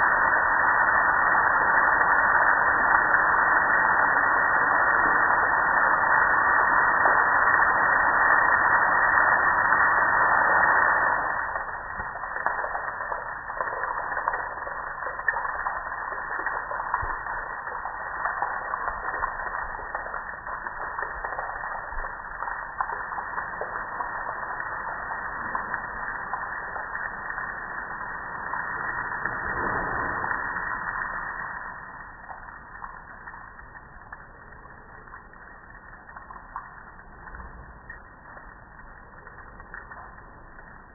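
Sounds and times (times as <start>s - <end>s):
water splashing onto concrete: 0.0s - 40.9s.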